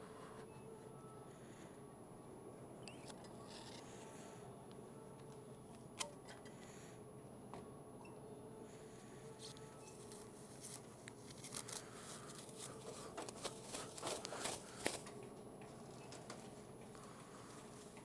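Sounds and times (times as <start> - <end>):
plastic bag crinkling: 9.9 - 15.1.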